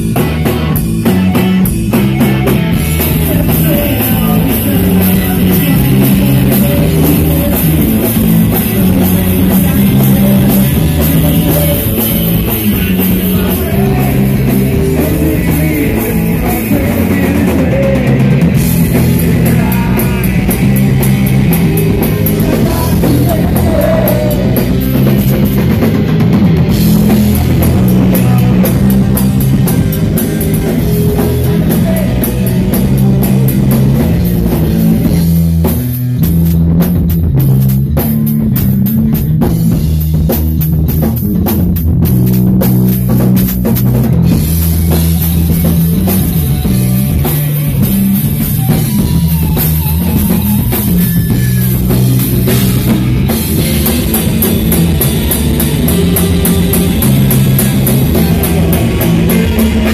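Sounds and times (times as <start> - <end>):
heavy rock band playing: 0.0 - 59.9
drum cymbal beat: 36.2 - 59.9.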